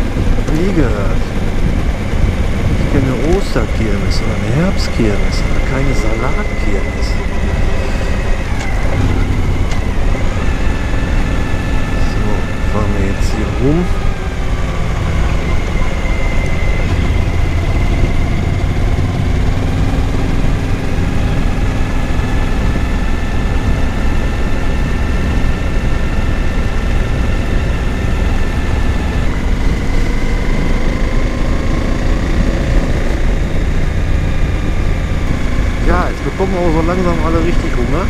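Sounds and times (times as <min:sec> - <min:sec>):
motorcycle engine running: 0:00.0 - 0:38.0
wind and road noise: 0:00.0 - 0:38.0.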